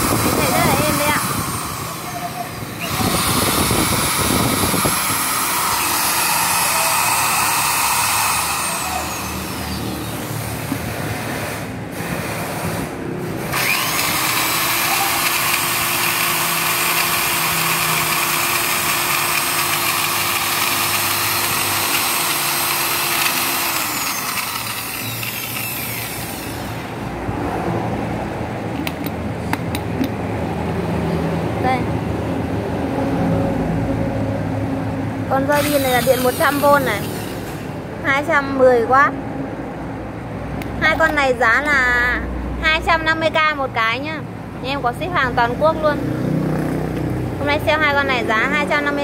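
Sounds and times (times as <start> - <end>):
electric drill whining: 0.0 - 10.5, 13.5 - 27.0, 35.5 - 37.6.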